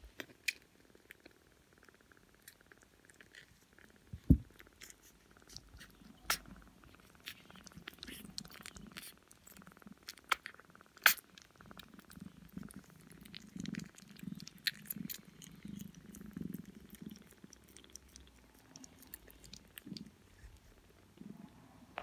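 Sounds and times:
cat purring: 0.7s - 22.0s
kittens suckling: 1.1s - 21.8s
loud low thump: 4.2s - 4.5s.

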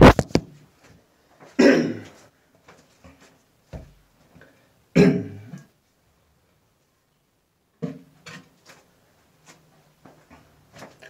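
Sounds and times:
camera knocking and rubbing: 0.0s - 0.5s
person coughing: 1.6s - 2.2s, 5.0s - 5.7s.

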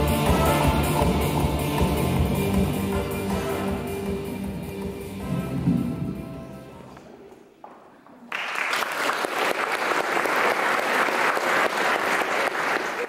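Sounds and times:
audience applauding: 8.2s - 13.0s.

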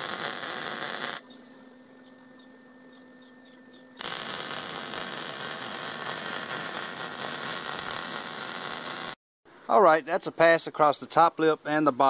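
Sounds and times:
welding arc crackling hiss: 0.0s - 1.2s, 4.0s - 9.2s.

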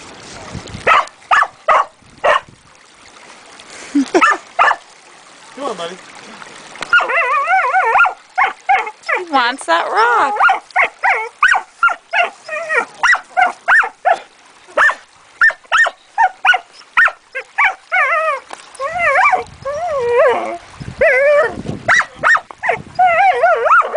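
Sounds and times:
dog yipping: 0.9s - 2.4s, 4.2s - 4.8s, 6.9s - 9.2s, 10.3s - 14.2s, 14.8s - 23.9s
dog whining: 6.9s - 9.2s, 10.3s - 14.2s, 14.8s - 23.9s.

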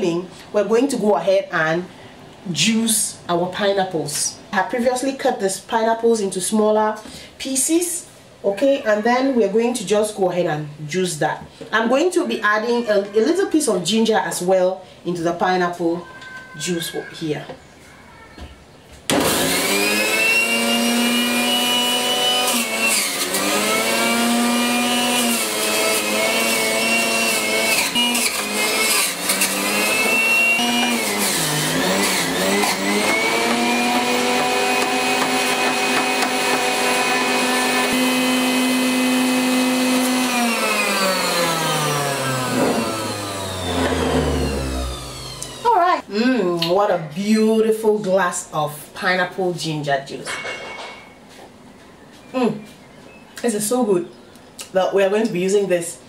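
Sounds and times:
electric juicer motor humming: 19.1s - 46.0s.

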